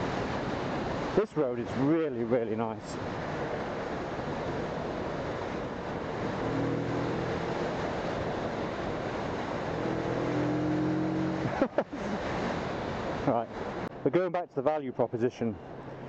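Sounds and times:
wind rushing over microphone: 0:00.0 - 0:14.0
motorcycle engine: 0:06.2 - 0:11.5.

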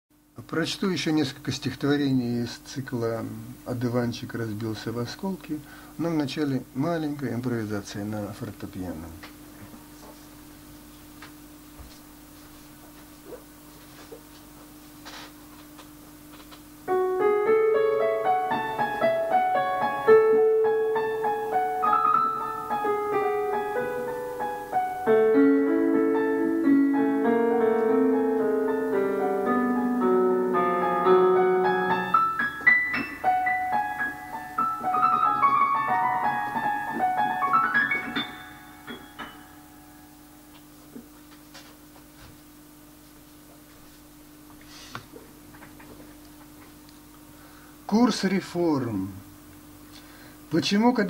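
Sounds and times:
faint steady hum: 0:00.1 - 0:51.0
solo piano: 0:16.9 - 0:40.5.

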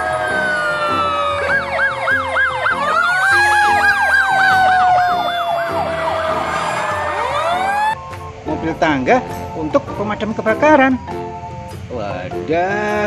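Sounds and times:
siren wailing: 0:00.0 - 0:08.4
siren yelping: 0:00.0 - 0:08.4.

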